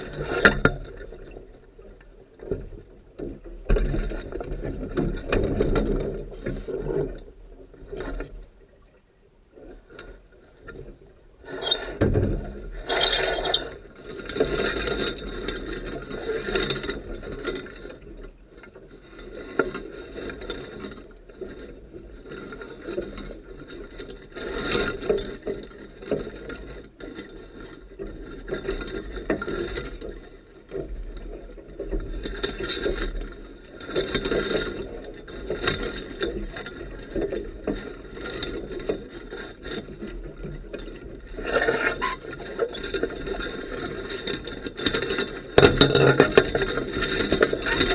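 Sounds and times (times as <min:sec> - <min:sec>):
sailboat mast squealing and scraping: 0:11.4 - 0:12.1, 0:12.7 - 0:13.9, 0:41.3 - 0:42.9.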